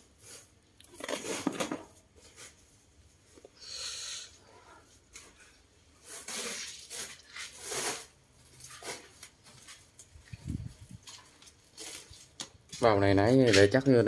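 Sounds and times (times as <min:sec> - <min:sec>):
plastic sack rustling and scraping: 0:00.1 - 0:03.0, 0:05.1 - 0:12.4.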